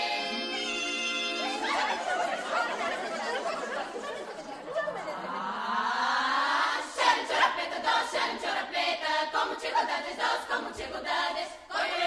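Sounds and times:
women's folk choir singing: 0.0 - 2.7, 5.8 - 12.0.

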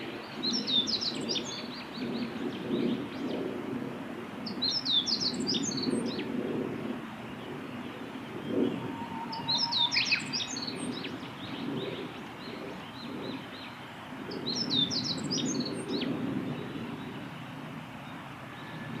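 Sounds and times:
bird singing high chirps: 8.6 - 11.6.

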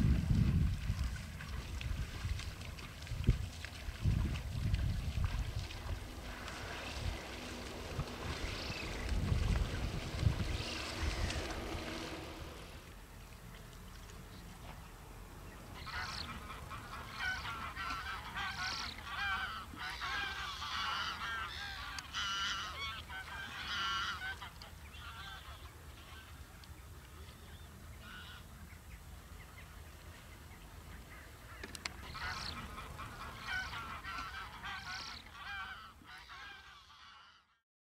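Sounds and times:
wind rumbling on microphone: 0.0 - 13.0
geese honking: 5.2 - 12.8, 15.6 - 26.4, 28.0 - 28.5, 30.9 - 37.6.

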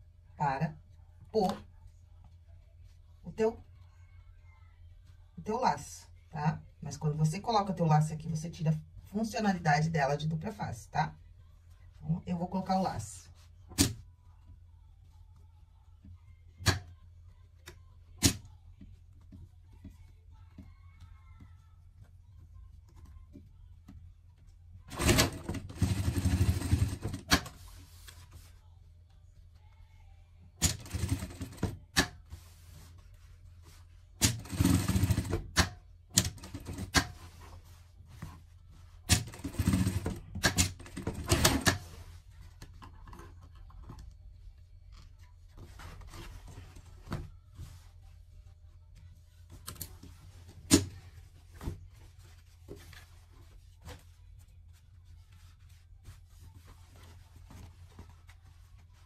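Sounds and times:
sewing machine stitching: 24.9 - 27.4, 30.6 - 31.8, 34.2 - 37.1, 39.1 - 41.8.

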